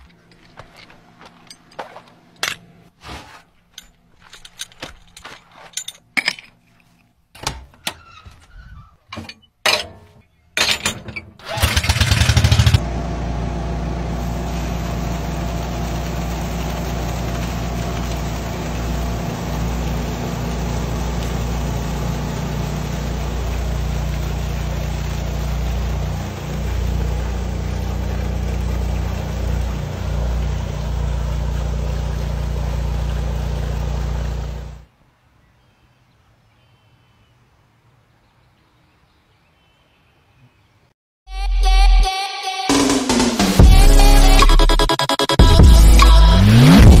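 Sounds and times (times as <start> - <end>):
knocks and clunks: 7.3 - 11.6
pump engine humming: 11.4 - 34.9, 43.4 - 47.0
water rushing from hose: 11.6 - 34.9.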